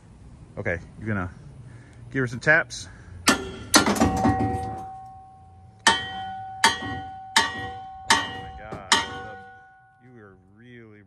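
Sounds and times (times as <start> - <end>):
sledgehammer striking steel: 3.2 - 10.2
metallic ringing: 3.2 - 10.9.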